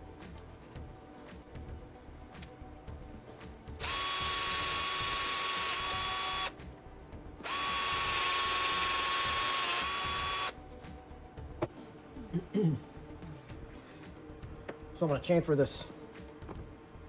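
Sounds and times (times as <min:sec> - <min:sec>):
cordless drill drilling into metal: 0:03.8 - 0:06.5, 0:07.4 - 0:10.5.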